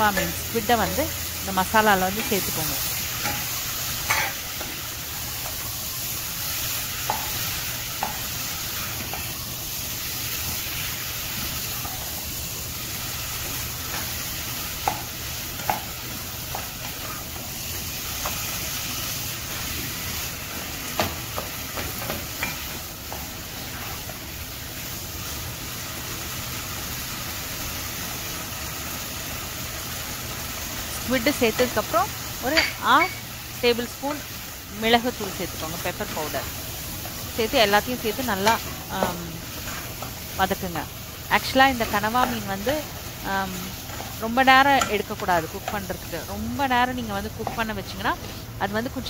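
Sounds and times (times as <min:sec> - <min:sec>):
squid sizzling in a pot: 0:00.0 - 0:49.0.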